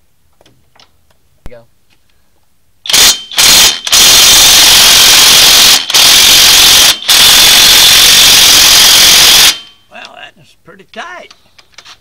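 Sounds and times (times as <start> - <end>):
impact wrench bursts: 2.8 - 9.8.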